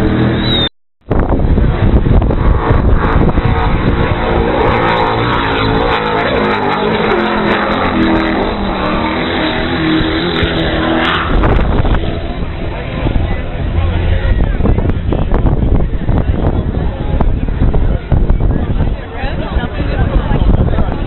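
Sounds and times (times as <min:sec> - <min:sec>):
powerboat engines at full speed: 0:00.0 - 0:21.0.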